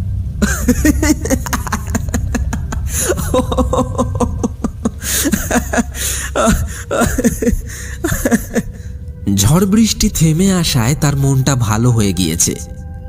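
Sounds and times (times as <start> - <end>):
low background drone: 0.0 - 13.0
man laughing loudly: 0.4 - 8.9.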